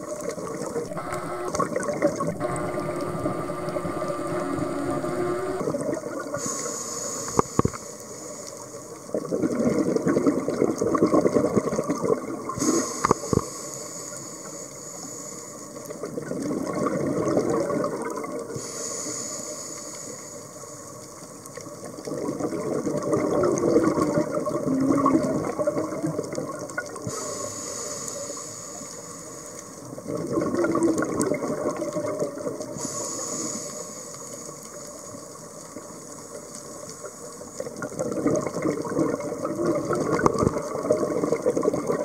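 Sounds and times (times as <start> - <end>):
exhaled bubbles rushing: 0.4 - 6.4, 9.1 - 12.6, 16.2 - 18.5, 30.0 - 32.7, 37.8 - 42.0
sharp clicks: 0.9 - 5.7
scuba regulator breathing hiss: 6.4 - 9.0, 12.6 - 15.8, 18.6 - 21.0, 27.1 - 29.8, 32.7 - 34.8.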